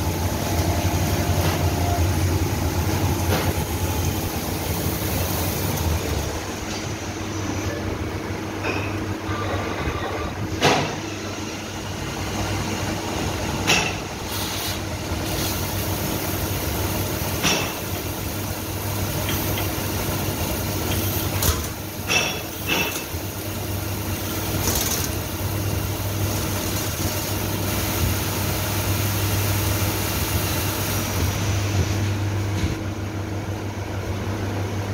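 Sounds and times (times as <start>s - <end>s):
lathe machine hum: 0.0s - 8.4s
coolant spray hiss: 14.2s - 32.0s.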